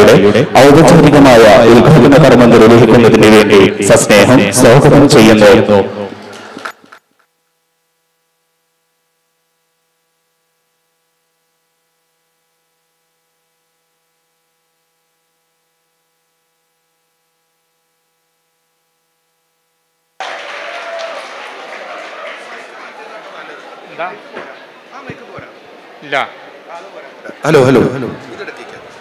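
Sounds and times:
loud room noise: 0:00.0 - 0:07.0, 0:20.2 - 0:29.0
faint electrical hum: 0:00.0 - 0:29.0.

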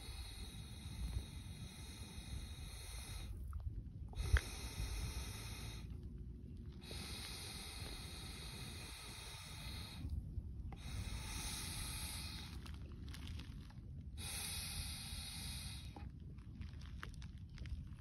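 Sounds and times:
air blown through a straw: 0:00.0 - 0:06.0, 0:06.8 - 0:12.8, 0:14.2 - 0:16.0
steady low rumble: 0:00.0 - 0:18.0.

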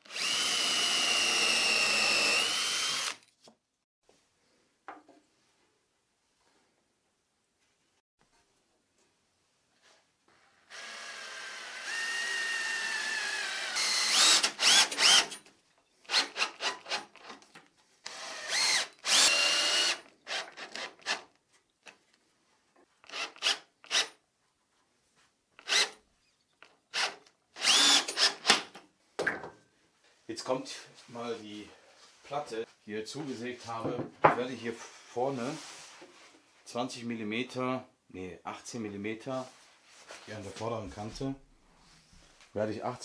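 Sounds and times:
cordless drill driving screws: 0:00.0 - 0:03.3, 0:10.7 - 0:15.4, 0:16.0 - 0:17.4, 0:18.0 - 0:21.3, 0:23.0 - 0:24.2, 0:25.6 - 0:26.0, 0:26.9 - 0:28.7.

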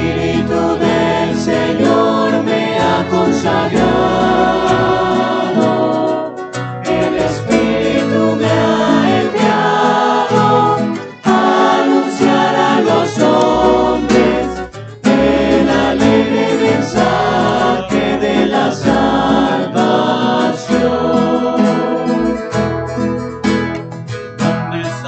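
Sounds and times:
choir singing a hymn: 0:00.0 - 0:22.7
instrumental accompaniment: 0:00.0 - 0:25.0.

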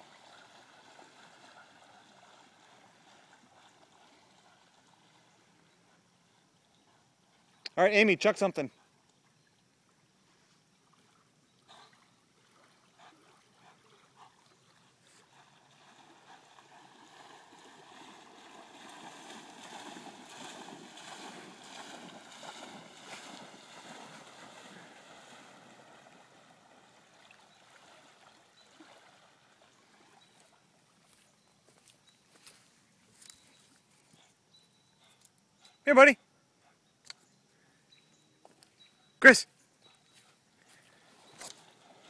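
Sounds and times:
dog splashing in water: 0:14.7 - 0:30.2.

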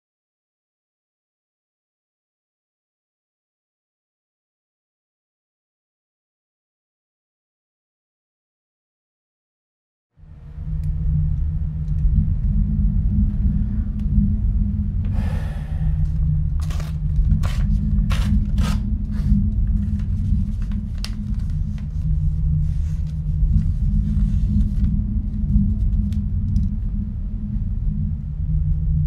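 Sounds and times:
steady low rumble: 0:10.2 - 0:29.0
notebook pages rustling: 0:16.6 - 0:19.3, 0:19.9 - 0:22.0.

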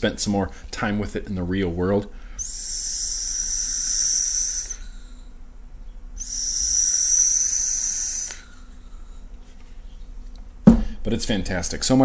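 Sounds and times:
electronic cigarette hissing draws: 0:02.4 - 0:05.3, 0:06.2 - 0:09.2.

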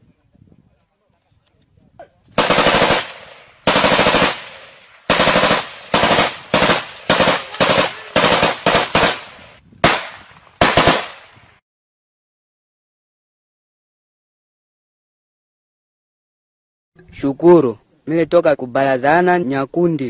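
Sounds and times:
machine gun bursts: 0:02.4 - 0:04.5, 0:05.1 - 0:09.4.

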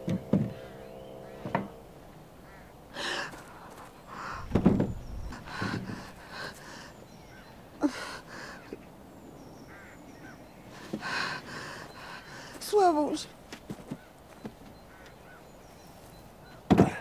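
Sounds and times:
men breathing and grunting: 0:02.9 - 0:07.1
heavy thud: 0:04.3 - 0:06.2.

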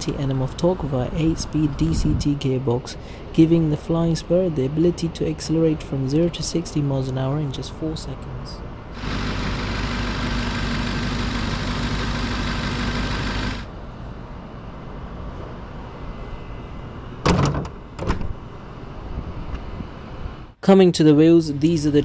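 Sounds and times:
mechanical running hum: 0:09.0 - 0:13.7.

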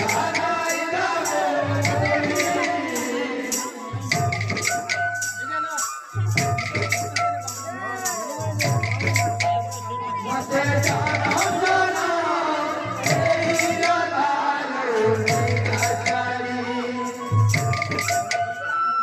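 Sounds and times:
drums beating: 0:00.0 - 0:05.5, 0:06.2 - 0:09.8, 0:10.4 - 0:12.2, 0:13.0 - 0:14.2, 0:15.1 - 0:16.4
jingling cymbals: 0:00.0 - 0:12.1.

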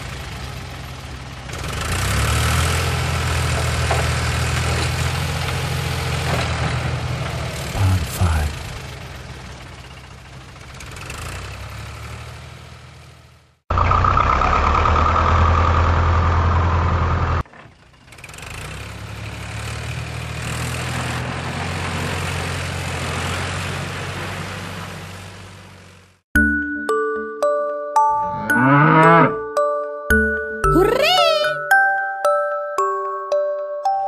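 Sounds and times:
heavy vehicle engine running: 0:00.0 - 0:26.2
chiming glockenspiel notes: 0:26.4 - 0:34.0.

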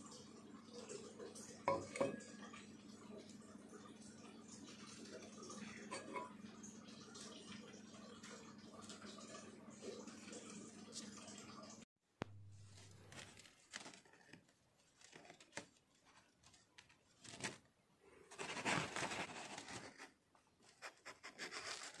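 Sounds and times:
wire mesh rustling and crackling: 0:12.6 - 0:17.7.

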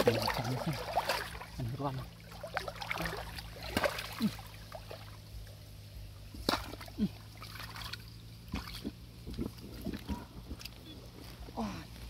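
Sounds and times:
sharp splashes: 0:00.0 - 0:05.2, 0:06.4 - 0:09.9
muddy water sloshing: 0:00.0 - 0:12.0.

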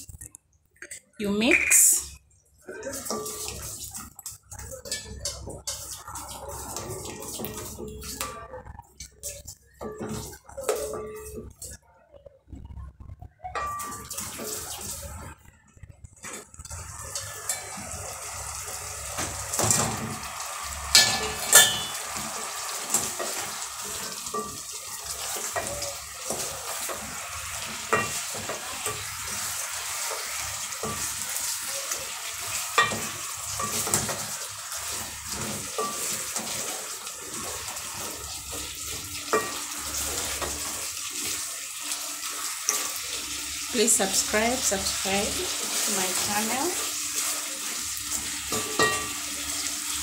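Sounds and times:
sauce sizzling in pot: 0:01.4 - 0:11.7, 0:13.6 - 0:15.5, 0:16.2 - 0:50.0
wooden spoon stirring: 0:02.6 - 0:11.8, 0:21.8 - 0:49.7
spoon knocking against pot: 0:21.0 - 0:22.0.

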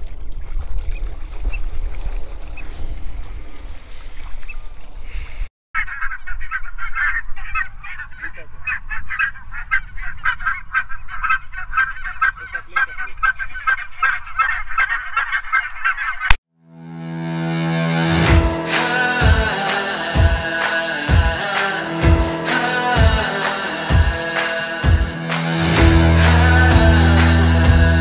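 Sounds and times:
geese honking: 0:05.8 - 0:16.2
low rumble: 0:24.8 - 0:28.0.

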